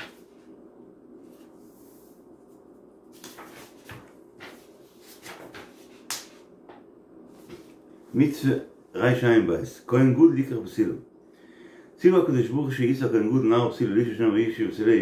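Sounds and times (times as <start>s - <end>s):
faint steady hum: 0.0s - 15.0s
book pages rustling: 1.2s - 6.5s.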